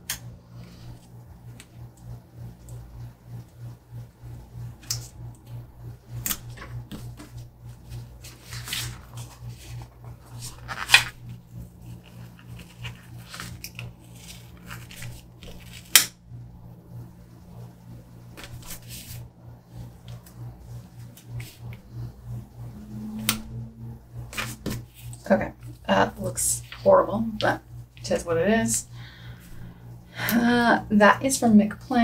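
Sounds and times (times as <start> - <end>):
pulsing low hum: 0.0 - 31.0
sticker sheets rustling: 6.2 - 16.0.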